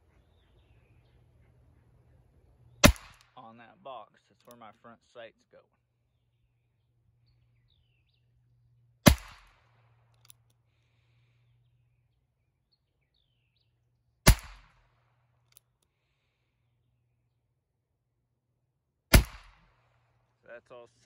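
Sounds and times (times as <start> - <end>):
revolver gunshots: 2.8 - 3.4, 9.0 - 9.8, 14.3 - 14.9, 19.1 - 19.8.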